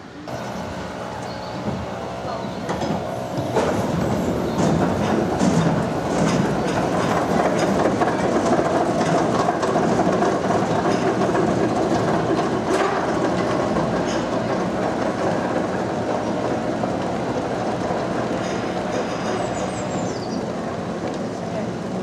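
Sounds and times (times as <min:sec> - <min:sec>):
anti-rollback ratchet clacks: 0:00.3 - 0:20.1
chain lift mechanical rattle: 0:00.6 - 0:15.7.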